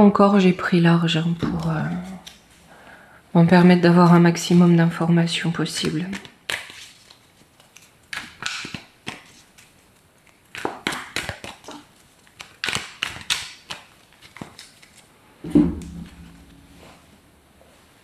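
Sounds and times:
cards shuffling snaps and rustles: 1.6 - 2.7, 5.8 - 15.1.

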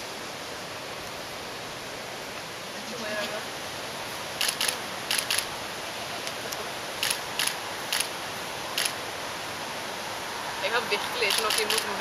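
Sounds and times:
steady hiss: 0.0 - 12.0
sharp clicks: 7.0 - 8.1.

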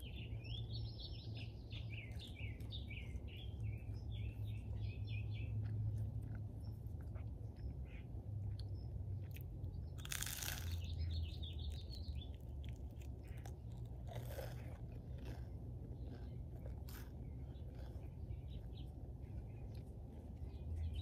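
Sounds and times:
crunching toast: 9.2 - 20.4.

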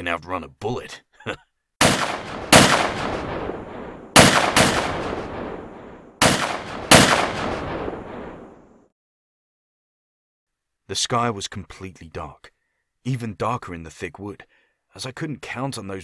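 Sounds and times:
gunshots with long echo: 1.8 - 8.8.

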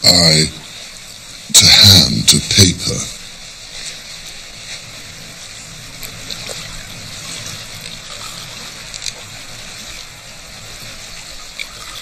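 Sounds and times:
small waves lapping: 0.0 - 12.0.

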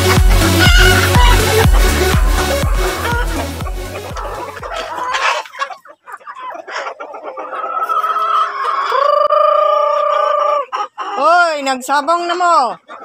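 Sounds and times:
chickens clucking: 0.0 - 13.0
rooster crowing: 0.5 - 1.6.

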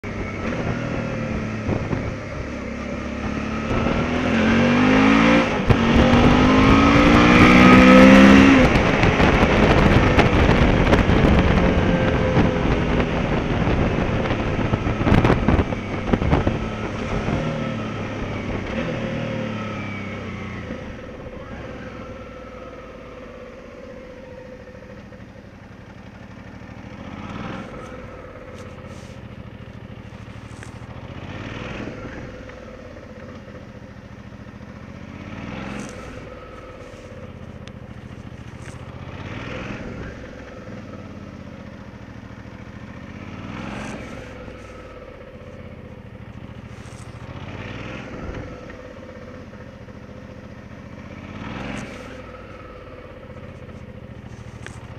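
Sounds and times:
motorcycle engine accelerating: 0.0 - 54.9
wind noise on microphone: 0.2 - 2.5, 5.4 - 18.9.

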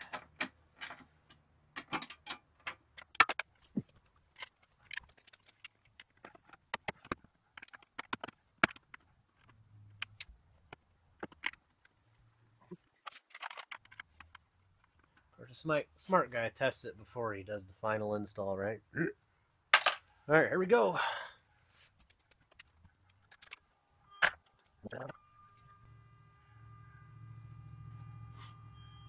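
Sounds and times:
clicks and clinks of hard parts: 0.0 - 3.7.

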